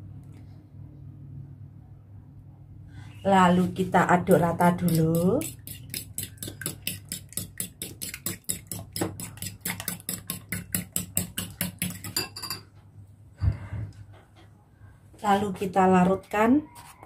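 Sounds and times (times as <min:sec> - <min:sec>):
spoon clinking in bowl: 0:11.8 - 0:12.8.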